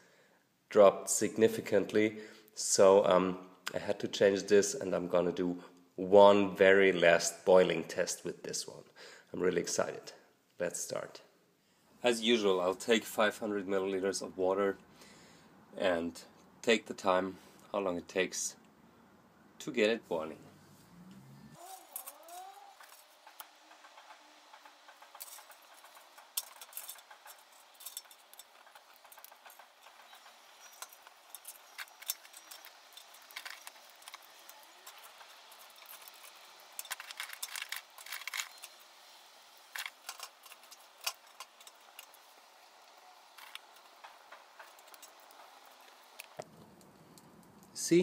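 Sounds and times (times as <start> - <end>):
small fire crackling: 20.1 - 48.0.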